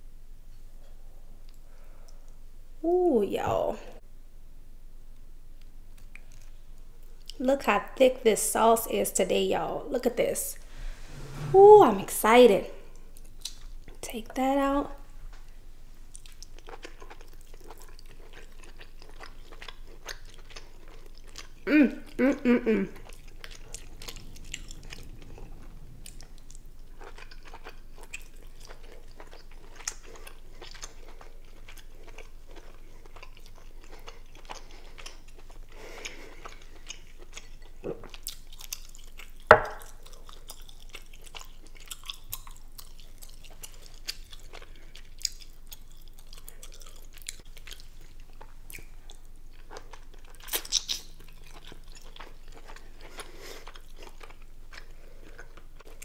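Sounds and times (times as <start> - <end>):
person chewing with wet mouth sounds: 5.6 - 7.4, 16.0 - 56.0
mouth smacks and clicks: 50.5 - 51.1.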